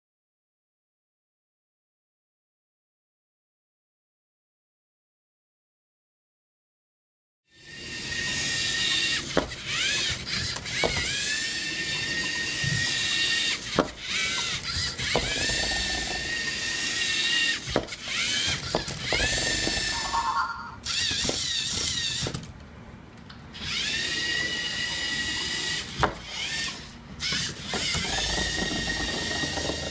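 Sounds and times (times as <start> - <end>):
electric motors whining through gears: 7.5 - 22.4, 23.6 - 29.9.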